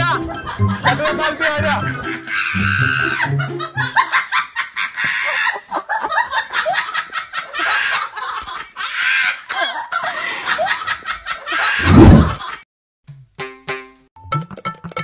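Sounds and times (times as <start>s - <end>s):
people snickering and chuckling: 1.9s - 12.6s.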